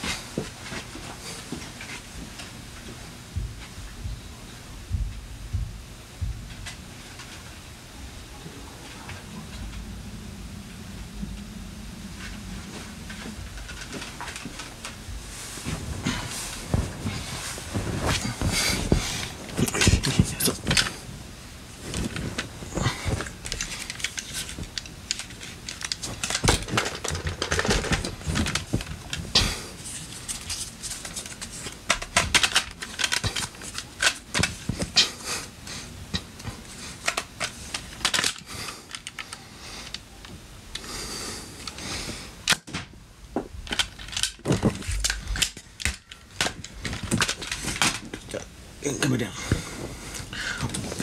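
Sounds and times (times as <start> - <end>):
plastic toy clicks and rattles: 23.4 - 28.9, 31.2 - 34.5.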